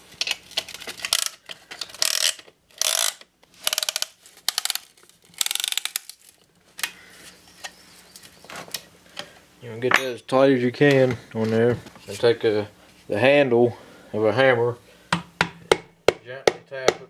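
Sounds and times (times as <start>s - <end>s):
ratchet clicking: 2.0s - 4.8s.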